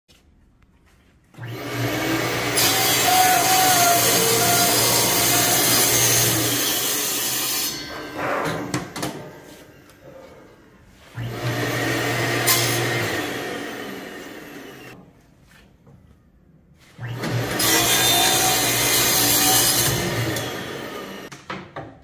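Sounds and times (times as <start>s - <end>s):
saw humming: 1.4s - 8.7s, 11.1s - 15.0s, 17.0s - 21.3s
saw cutting acrylic sheet: 1.4s - 9.0s, 11.2s - 15.0s, 17.0s - 21.3s.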